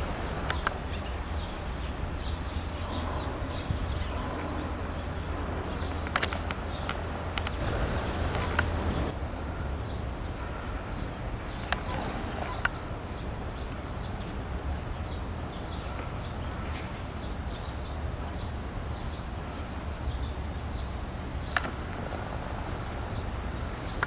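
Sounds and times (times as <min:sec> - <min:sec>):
steady low rumble: 0:00.0 - 0:13.4
birds chirping: 0:00.0 - 0:24.0
sharp clicks: 0:21.5 - 0:22.2.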